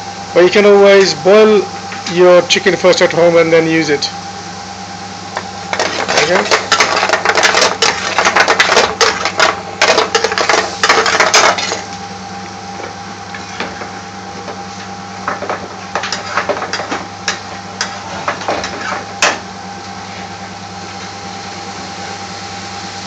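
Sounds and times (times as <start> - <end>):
steady background hum: 0.0 - 23.0
metal spoon scraping pan: 5.7 - 11.8, 16.0 - 19.1
frying pan clattering on hob grate: 5.7 - 11.9.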